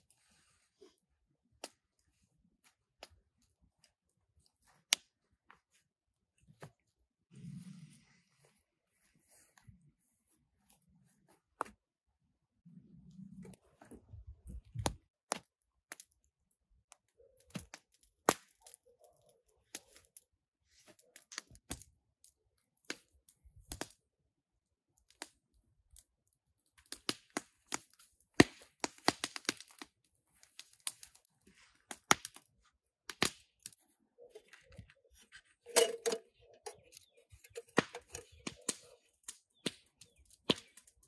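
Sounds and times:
campfire crackling and popping: 26.7s - 31.3s, 31.9s - 33.8s, 37.5s - 41.0s
sticks knocking: 35.7s - 38.7s.

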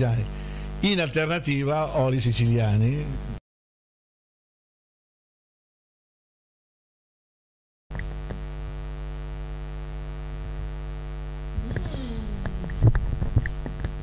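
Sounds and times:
electrical mains hum: 0.0s - 3.4s, 7.9s - 14.0s
short falling vocal sound: 11.6s - 12.9s.

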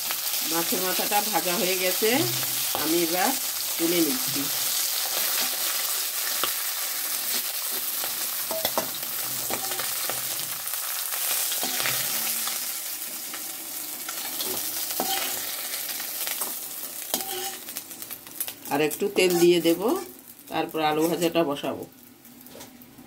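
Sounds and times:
oil sizzling in a pan: 0.0s - 23.0s
metal spatula scraping a pan: 8.5s - 10.5s, 11.5s - 12.6s, 14.1s - 15.8s, 16.4s - 17.8s, 19.2s - 20.1s.

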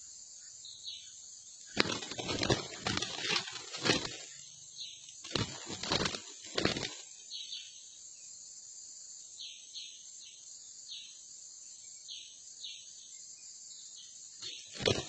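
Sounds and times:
high insect drone: 0.0s - 15.0s
flapping wings: 1.7s - 4.4s, 5.2s - 7.2s, 14.4s - 15.0s.

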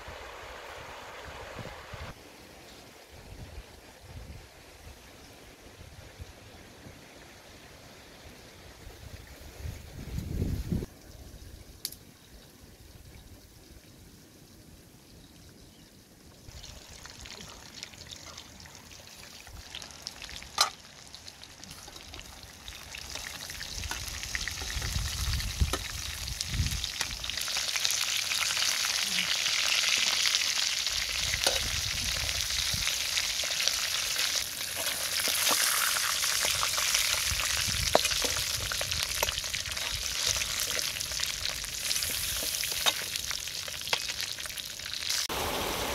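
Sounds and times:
food sizzling in oil: 16.5s - 45.9s.

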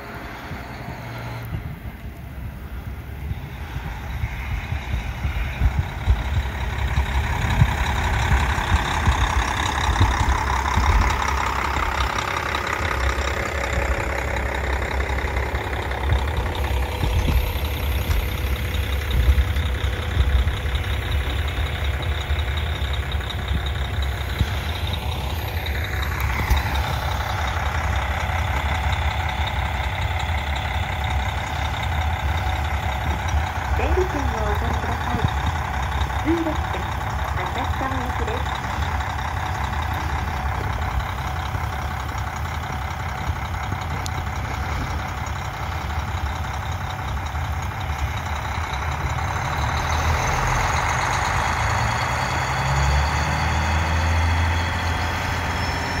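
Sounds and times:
diesel railcar engine rumbling: 0.0s - 56.0s.

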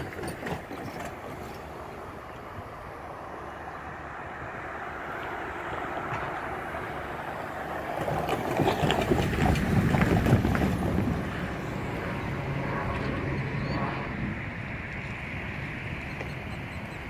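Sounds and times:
wheels knocking over rails: 0.0s - 1.9s
truck tyres and engine: 0.0s - 17.0s
wind on microphone: 5.7s - 17.0s.

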